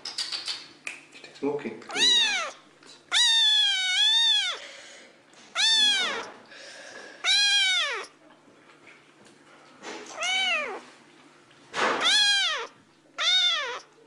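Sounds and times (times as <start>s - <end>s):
cat meowing: 1.9s - 4.6s, 5.5s - 6.4s, 7.2s - 8.2s, 10.1s - 10.9s, 12.0s - 14.0s.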